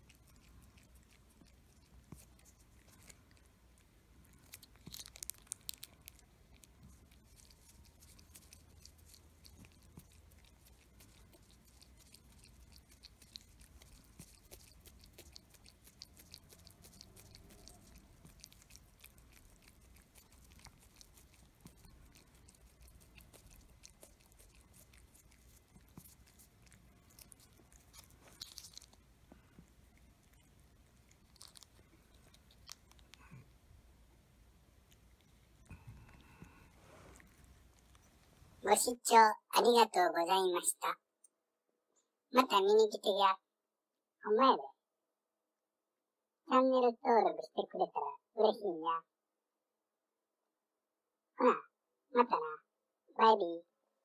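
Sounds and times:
cat licking and chewing: 0.0 - 40.7.

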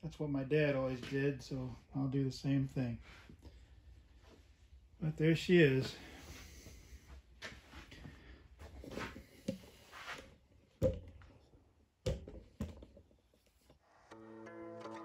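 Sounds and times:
guitar music: 14.0 - 15.0.

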